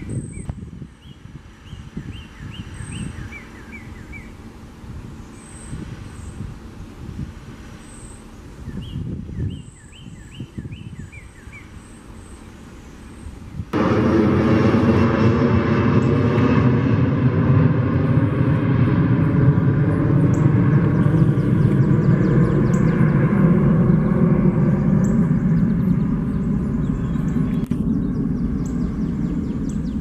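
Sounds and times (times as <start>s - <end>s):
loud engine drone: 13.7s - 30.0s.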